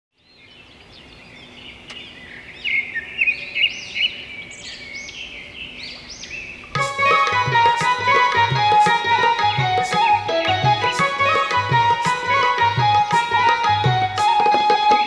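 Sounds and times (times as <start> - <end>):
birds chirping: 0.2 - 15.0.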